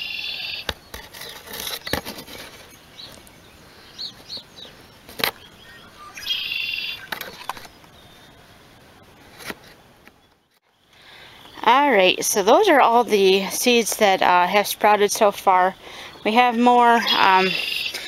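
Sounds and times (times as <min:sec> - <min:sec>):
songbird trill: 0:00.0 - 0:09.3, 0:10.1 - 0:18.0
faint bird chirps: 0:02.7 - 0:09.2.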